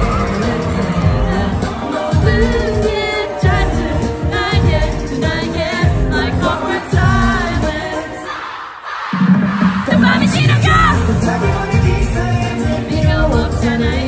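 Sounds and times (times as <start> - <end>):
group singing live: 0.0 - 14.0
backing track with bass beat: 9.2 - 14.0.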